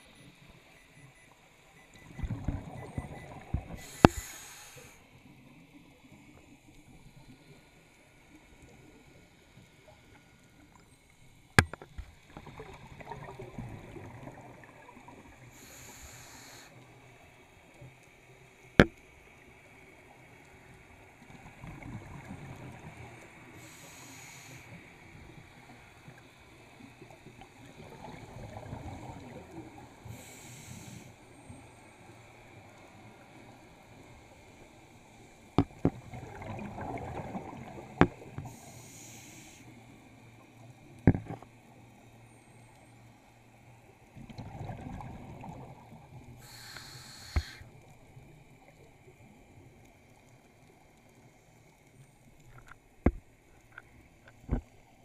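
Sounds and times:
exhaled bubbles rumbling: 2.0s - 3.8s, 35.7s - 38.3s, 44.2s - 46.2s
regulator inhale hiss: 3.8s - 5.1s, 15.4s - 16.8s, 23.5s - 24.9s, 30.0s - 31.4s, 38.4s - 40.0s, 46.4s - 47.8s.

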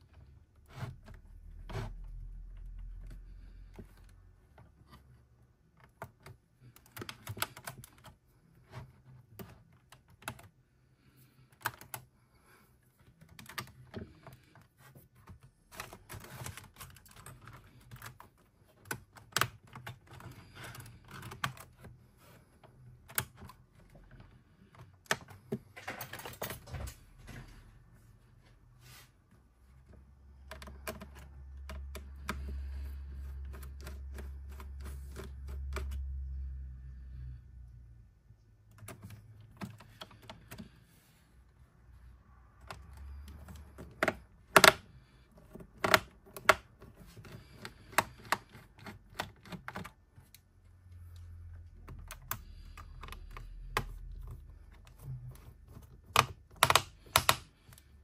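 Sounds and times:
laptop keys clicking: 5.8s - 8.2s, 15.2s - 22.0s, 30.4s - 36.1s, 51.2s - 58.0s.

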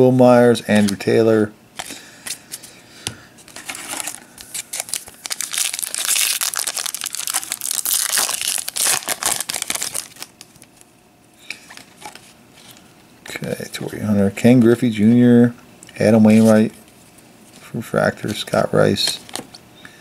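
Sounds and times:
foil wrapper crinkling and tearing: 3.7s - 10.8s.

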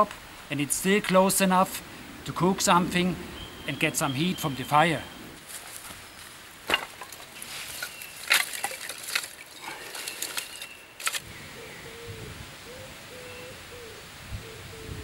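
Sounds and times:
low rumble of thunder: 1.8s - 5.4s
firewood sticks clattering: 6.6s - 11.2s.

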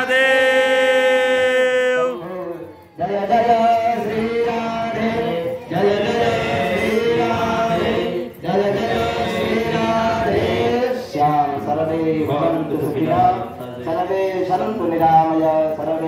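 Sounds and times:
man chanting through loudspeaker: 0.0s - 4.1s.

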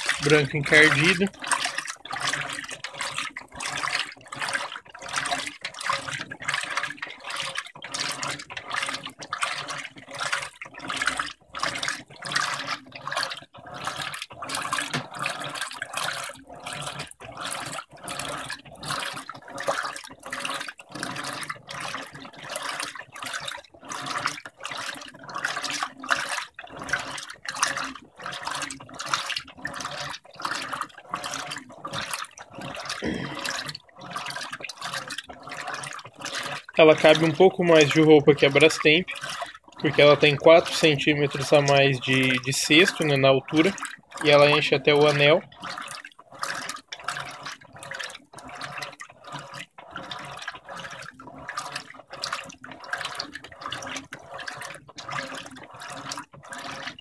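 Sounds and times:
washing machine water sloshing: 0.0s - 57.0s.

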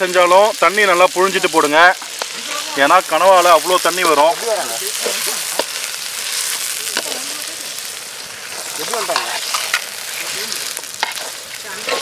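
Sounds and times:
squid sizzling in oil: 0.0s - 12.0s
spatula scraping metal pan: 8.5s - 12.0s.

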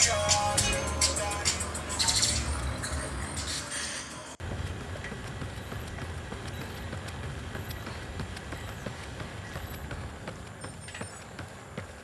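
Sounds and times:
running footsteps on asphalt: 4.4s - 12.0s.

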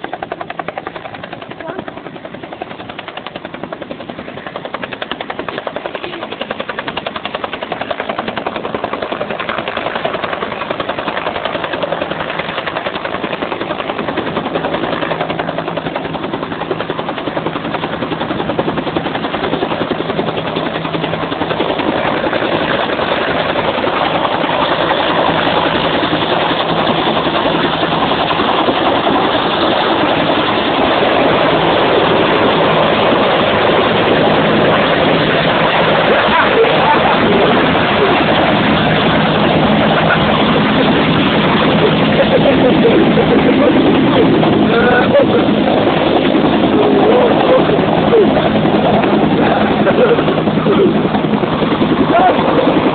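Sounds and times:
helicopter rotor beating: 0.0s - 52.9s.

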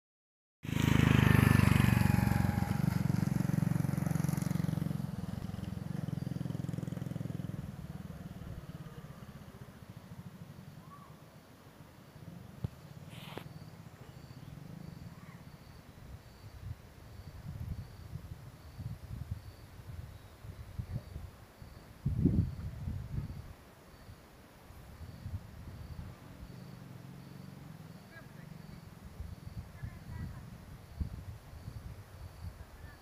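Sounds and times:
motorcycle engine running: 0.6s - 10.9s, 12.2s - 15.8s, 26.0s - 31.2s
faint high chirps: 10.6s - 11.4s, 12.2s - 18.1s.

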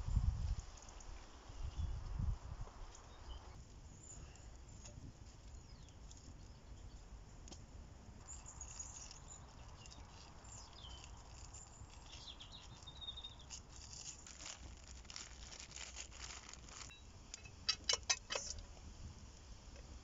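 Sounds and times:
plastic bag crinkling: 8.6s - 16.9s.

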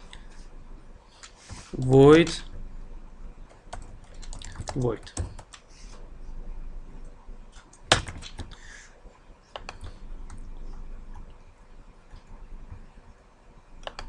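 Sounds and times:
computer keystrokes: 3.5s - 5.6s, 9.6s - 10.5s, 13.8s - 14.0s.

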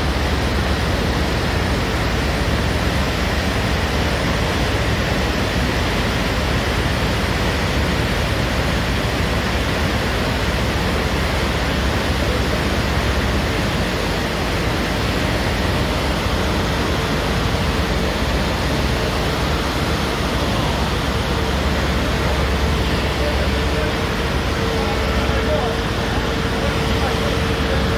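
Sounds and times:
torrent rushing with deep rumble: 11.3s - 27.9s.

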